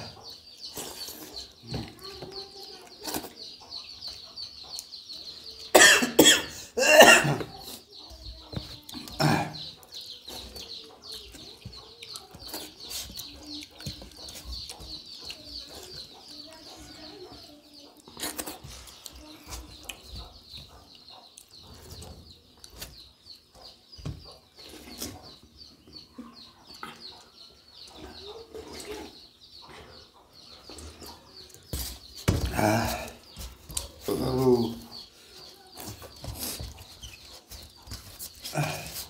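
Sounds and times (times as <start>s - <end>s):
chewing: 9.8s - 23.8s.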